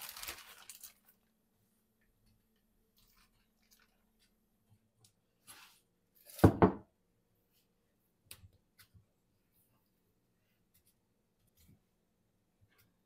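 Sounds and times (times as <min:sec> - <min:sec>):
lettuce rustling: 0:00.0 - 0:01.3, 0:03.0 - 0:04.3.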